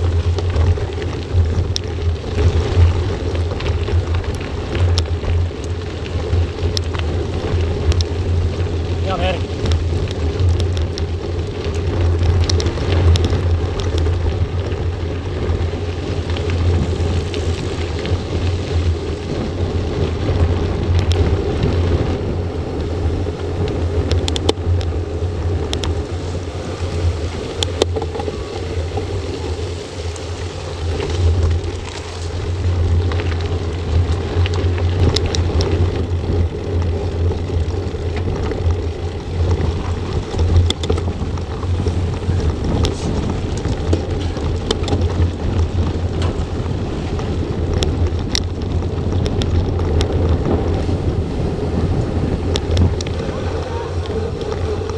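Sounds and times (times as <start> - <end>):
gravel clicks and bike rattling: 0.0 - 54.9
wind rumbling on microphone: 0.0 - 54.9
tyres hissing on road: 53.1 - 54.9.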